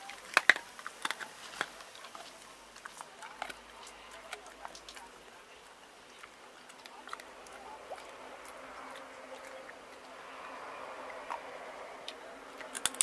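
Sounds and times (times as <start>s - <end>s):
dog eating from metal bowl: 0.0s - 11.7s.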